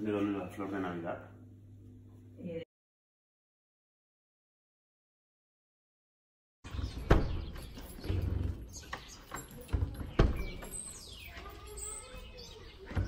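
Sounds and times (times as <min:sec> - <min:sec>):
birds calling: 0:06.6 - 0:13.0.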